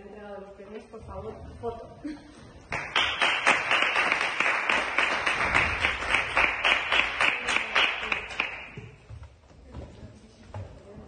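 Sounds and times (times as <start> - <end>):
audience applauding: 2.7 - 8.8.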